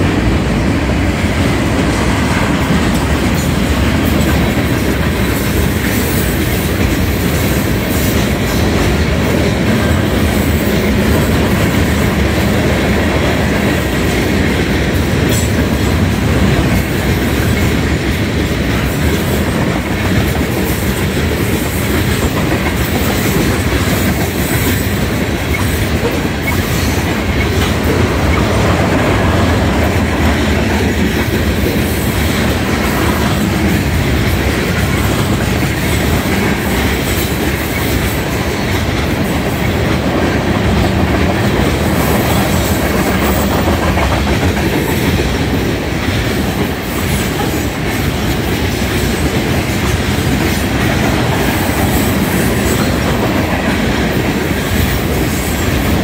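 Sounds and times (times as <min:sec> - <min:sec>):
train wheels rumbling on rails: 0:00.0 - 0:56.0
wheels clacking over rail joints: 0:00.0 - 0:56.0.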